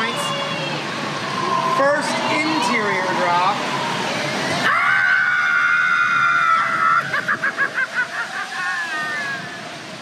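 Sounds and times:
water rushing: 0.0 - 10.0
riders screaming: 4.6 - 7.6
pulsing cries or laughter: 6.4 - 9.6.

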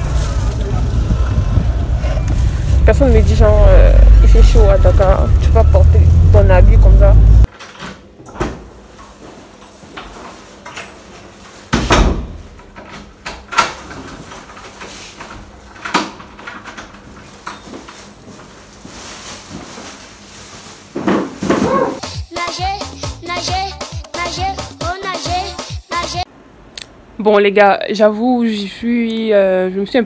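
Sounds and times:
front door opening and shutting: 11.7 - 17.6.

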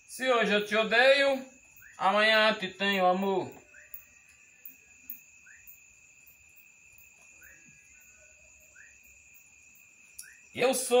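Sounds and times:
small animal chirping: 2.9 - 6.4
soft ticks: 10.1 - 10.4.

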